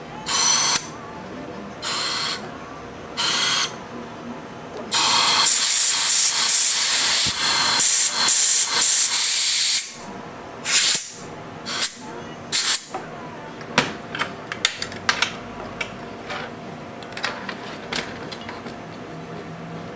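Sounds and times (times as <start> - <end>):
compressed air blow gun hissing: 10.6 - 12.0.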